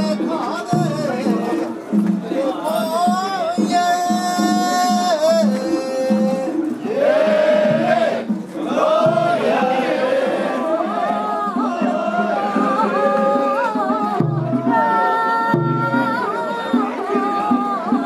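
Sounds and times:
busy drum rhythm: 0.0s - 18.0s.

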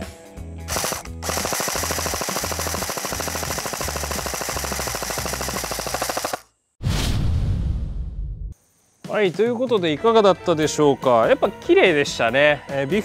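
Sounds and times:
airsoft gun full-auto rattle: 0.7s - 6.6s.

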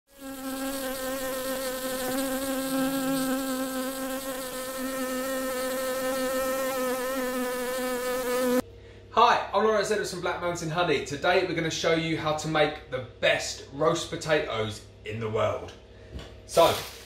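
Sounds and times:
bees buzzing: 0.1s - 8.6s.

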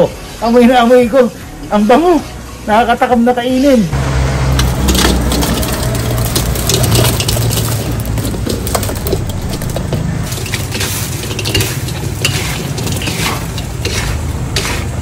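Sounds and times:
food tumbling into a wok: 4.6s - 15.0s
light sizzle: 4.6s - 15.0s
wooden spatulas scraping a wok: 4.6s - 15.0s.

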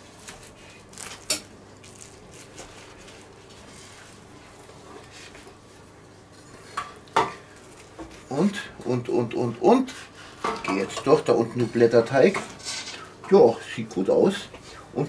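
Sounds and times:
knife cutting pastry crust: 0.2s - 4.1s.

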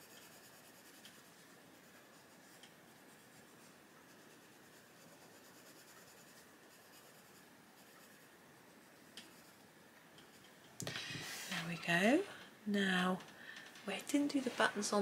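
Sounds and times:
pencil scratching on paper: 0.0s - 9.6s.

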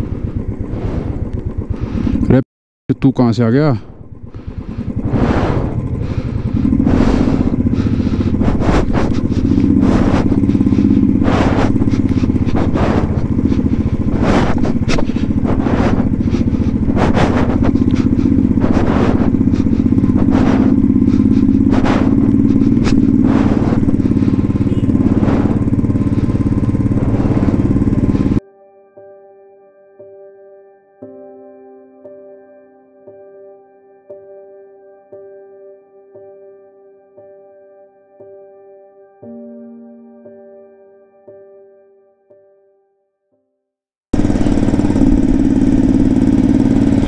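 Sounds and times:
motorcycle engine running: 0.0s - 28.4s, 44.2s - 47.0s.

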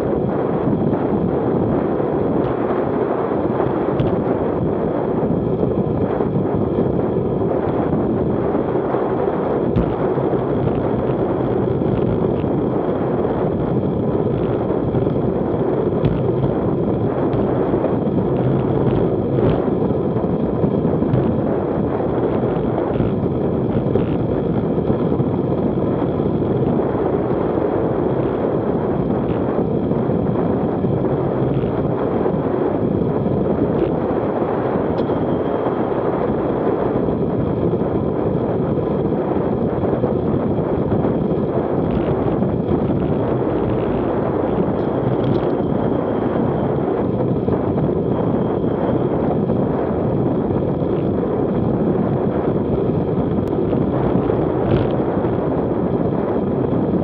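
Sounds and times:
wind buffeting microphone: 0.0s - 57.0s
tyre noise on asphalt: 14.3s - 20.1s.

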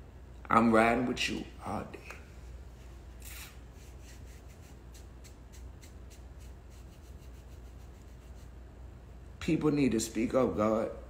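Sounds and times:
low steady hum: 0.0s - 11.0s
faint rubbing and scratching: 2.7s - 8.6s.

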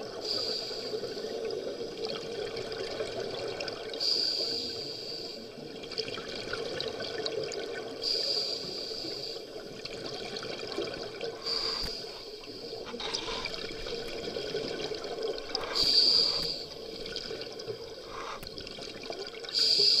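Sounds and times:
scuba regulator hiss: 0.2s - 1.3s, 4.0s - 5.5s, 8.0s - 9.5s, 11.4s - 13.6s, 15.6s - 16.8s, 19.5s - 20.0s
exhaled bubbles rushing: 12.8s - 19.5s.

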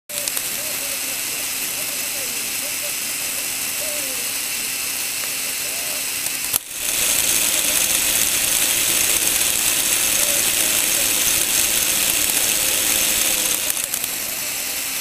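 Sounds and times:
plastic gearbox whirring: 0.1s - 5.4s, 6.1s - 15.0s.

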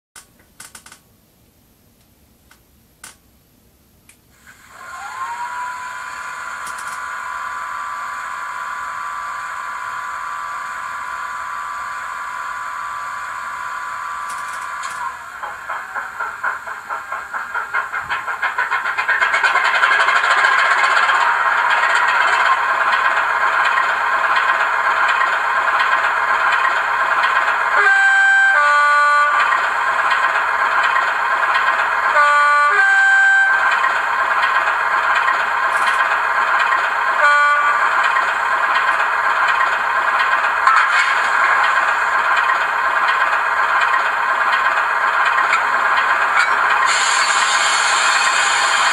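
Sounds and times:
model diesel engine sound: 4.4s - 48.9s
two-note horn: 27.8s - 29.5s, 32.2s - 33.7s, 37.2s - 37.9s.

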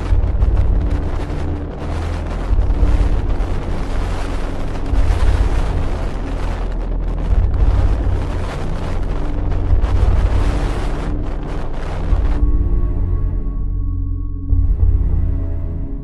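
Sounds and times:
rough sea rushing: 0.0s - 12.4s
wind buffeting microphone: 0.0s - 13.1s.

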